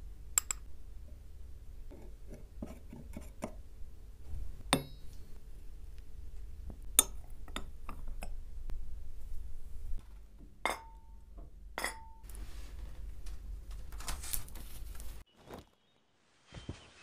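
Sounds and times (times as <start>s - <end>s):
metal burner clinking on ceramic: 4.7s - 5.1s, 6.9s - 8.4s, 10.6s - 11.1s, 11.8s - 12.2s.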